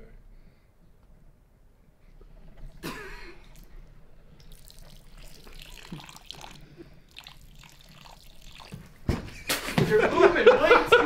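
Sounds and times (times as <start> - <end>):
water splashing into mouth: 2.4 - 9.1.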